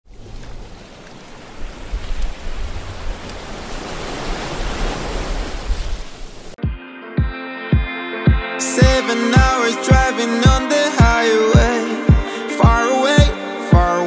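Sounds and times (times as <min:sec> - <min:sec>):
ocean waves rushing: 0:00.2 - 0:06.6.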